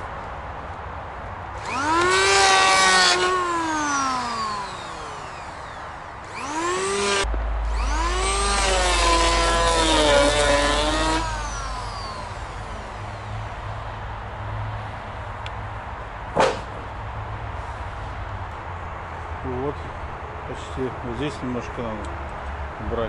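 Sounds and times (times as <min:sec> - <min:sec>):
electric hand planer cutting wood: 0:01.6 - 0:13.0.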